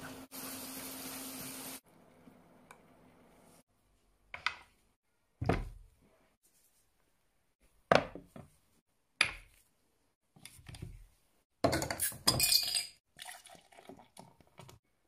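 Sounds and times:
beer pouring into glass: 0:13.1 - 0:14.3.

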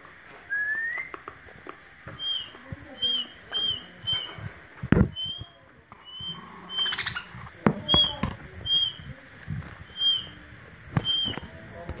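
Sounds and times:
budgerigars chirping: 0:02.2 - 0:04.4, 0:05.2 - 0:09.1, 0:09.8 - 0:10.4, 0:11.0 - 0:11.4.

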